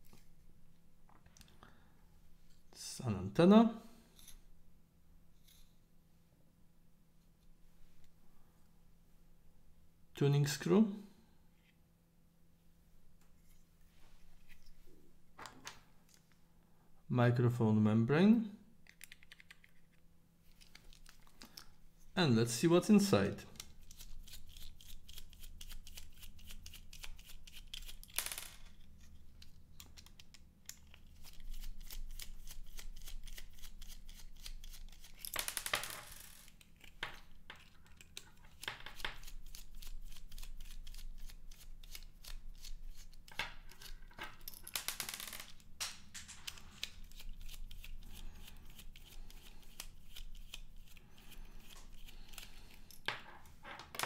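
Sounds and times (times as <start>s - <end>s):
screwdriver ticks and metal scrapes: 36.4s - 44.6s, 46.5s - 53.1s.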